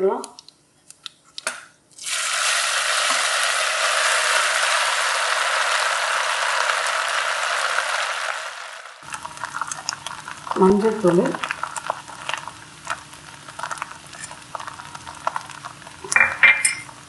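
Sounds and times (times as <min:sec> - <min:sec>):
hot ghee sizzling: 0:02.0 - 0:17.0.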